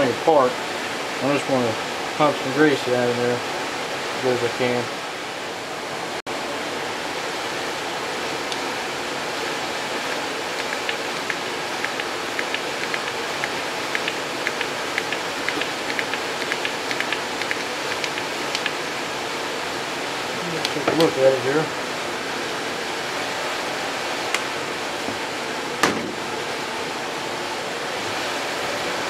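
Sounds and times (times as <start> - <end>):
steady hiss: 0.0 - 5.5, 6.4 - 29.0.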